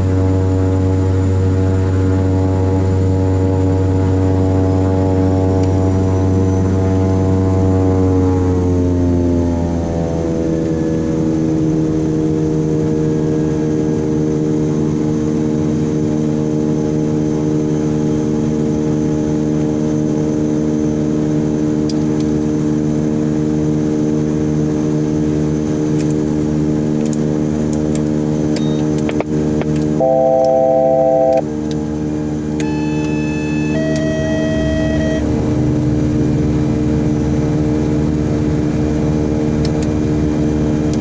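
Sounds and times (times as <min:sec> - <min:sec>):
turboprop engines idling: 0:26.9 - 0:41.0.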